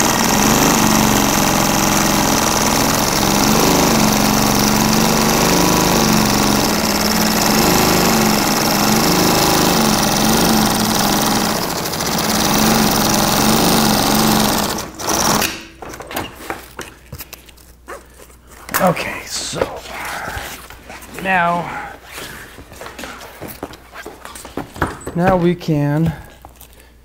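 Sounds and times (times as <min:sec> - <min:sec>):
sewing machine running: 0:00.0 - 0:15.8.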